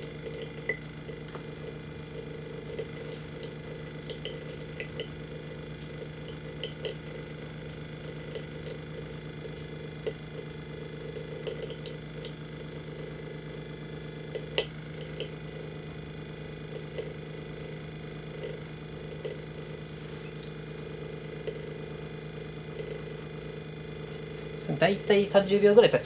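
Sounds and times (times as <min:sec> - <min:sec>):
vacuum pump humming: 0:00.0 - 0:26.0.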